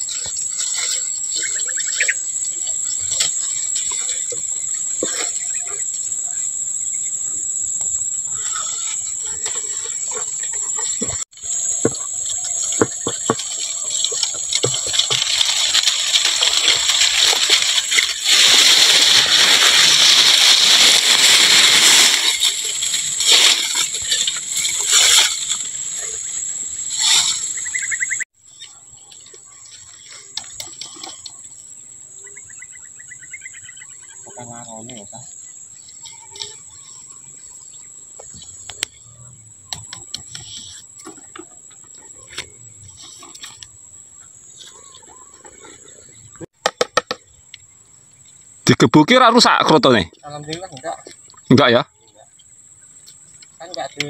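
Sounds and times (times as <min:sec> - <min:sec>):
high insect drone: 0:00.0 - 0:54.0
leaves and branches rustling: 0:08.3 - 0:31.9
twigs knocking and snapping: 0:11.5 - 0:25.7.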